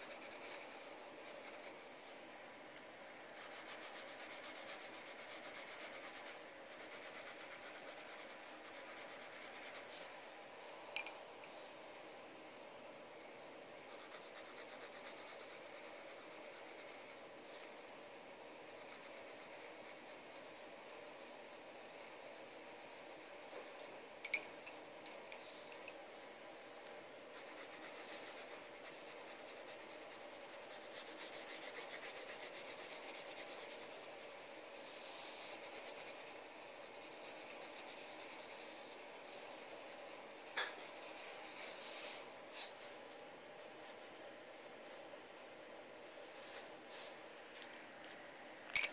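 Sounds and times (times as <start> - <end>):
pencil scratching on paper: 0.0 - 1.8, 3.4 - 10.1, 13.9 - 17.2, 18.6 - 23.9, 27.3 - 42.2, 43.6 - 46.7.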